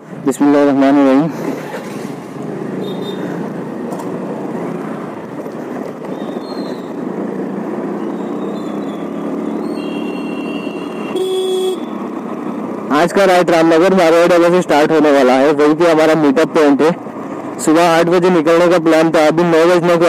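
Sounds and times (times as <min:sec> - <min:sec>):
road and wind noise: 0:00.0 - 0:20.0
vehicle horn: 0:02.8 - 0:03.3, 0:09.7 - 0:11.9.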